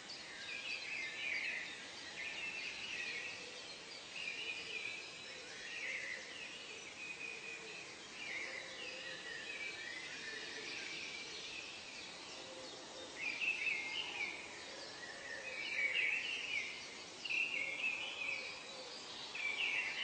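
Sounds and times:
steady background hiss: 0.0s - 20.0s.

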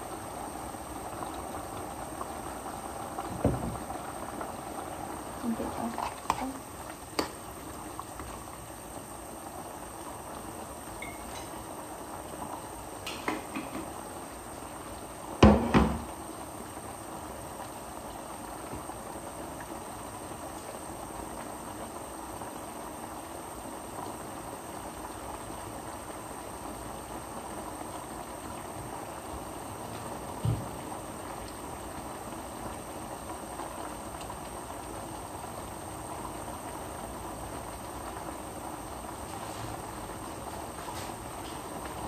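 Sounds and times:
sauce simmering in a pot: 0.0s - 42.0s
cookware knocks: 15.4s - 16.0s.

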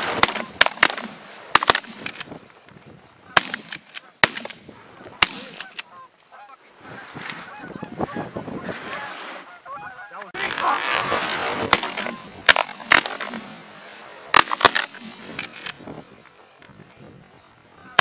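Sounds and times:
shotgun shots: 0.0s - 2.3s, 3.4s - 4.6s, 5.2s - 5.8s, 11.4s - 15.8s
geese honking: 3.0s - 16.6s, 17.3s - 18.0s.

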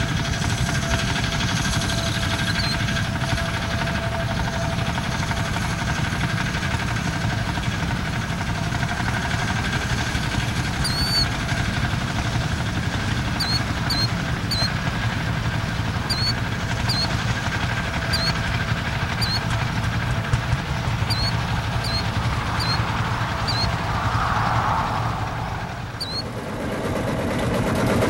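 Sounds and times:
diesel tractor engines running: 0.0s - 28.0s
small bird chirping: 2.4s - 2.8s, 10.7s - 11.4s, 13.3s - 14.8s, 15.7s - 17.2s, 17.9s - 19.6s, 21.0s - 23.8s, 26.0s - 26.3s.

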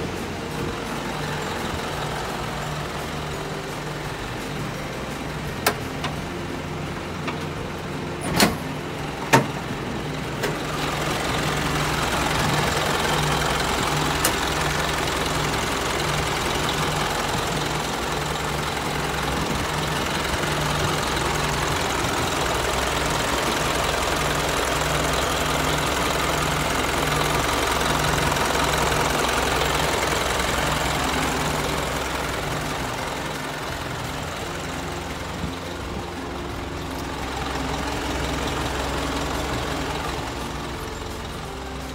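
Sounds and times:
diesel engine idling: 0.0s - 41.9s.

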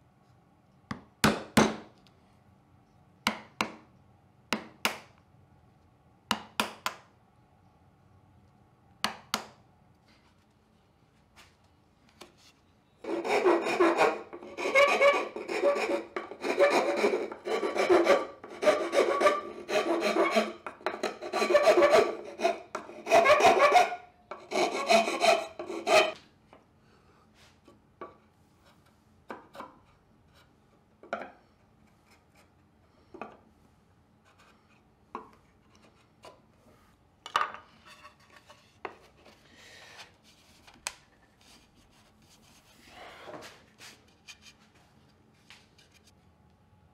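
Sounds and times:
metal file rasping on wood: 13.0s - 26.2s.

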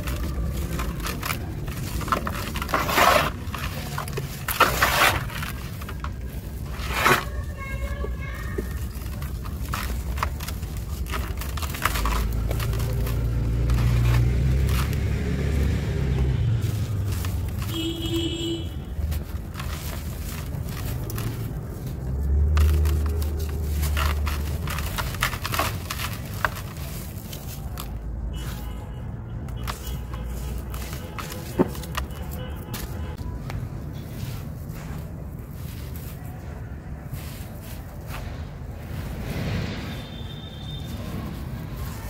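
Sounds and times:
cement lumps crumbling: 0.0s - 28.7s, 29.4s - 33.4s.

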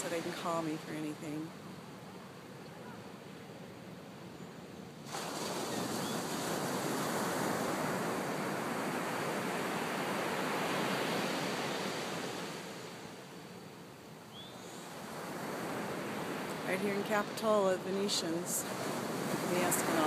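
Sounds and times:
breaking waves hissing: 5.0s - 13.0s, 14.6s - 20.0s.

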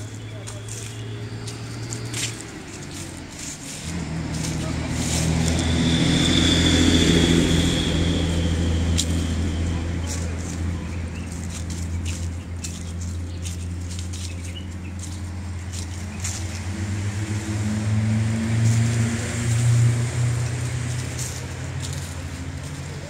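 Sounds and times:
low traffic engine hum: 0.0s - 23.0s
vehicle passing: 0.0s - 23.0s.

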